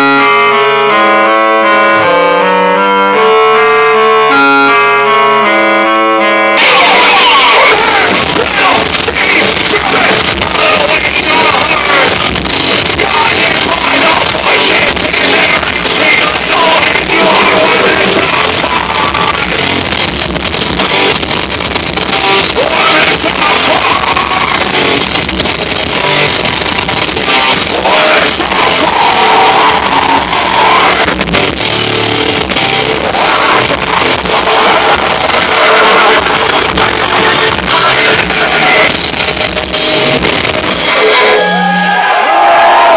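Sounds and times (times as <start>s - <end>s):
electric guitar: 0.0s - 42.2s
person singing: 6.6s - 19.8s, 22.5s - 24.9s, 27.2s - 31.2s, 32.6s - 39.0s
drums: 6.6s - 42.9s.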